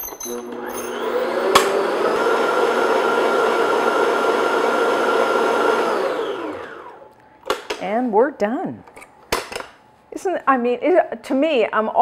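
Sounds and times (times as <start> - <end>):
stand mixer whisking: 0.4 - 7.0.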